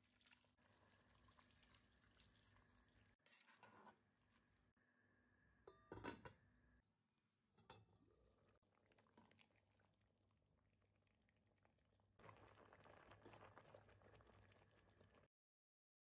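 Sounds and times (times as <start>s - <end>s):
spaghetti boiling in pot: 0.0s - 4.6s, 8.0s - 15.3s
stew simmering: 0.0s - 4.6s, 7.8s - 15.3s.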